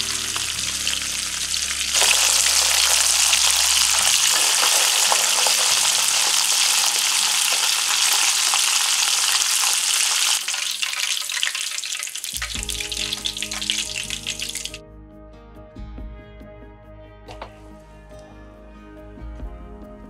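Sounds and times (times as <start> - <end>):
soft music: 0.0 - 8.5, 12.3 - 20.0
chicken deep-frying in hot oil: 0.0 - 14.8.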